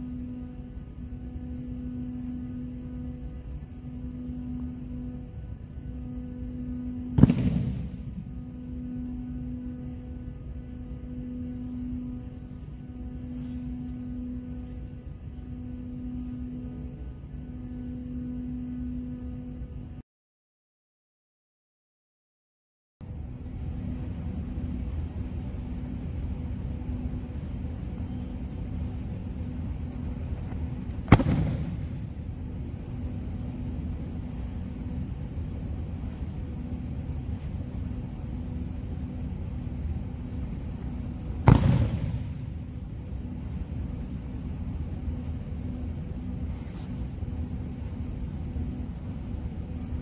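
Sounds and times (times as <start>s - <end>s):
low hum: 0.0s - 20.0s, 23.0s - 50.0s
body smacking on mats: 30.9s - 32.0s, 41.4s - 42.4s.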